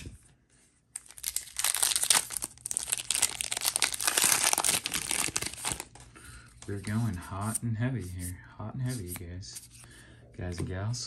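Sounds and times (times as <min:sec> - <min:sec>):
foil wrapper crinkling and tearing: 0:01.0 - 0:06.0.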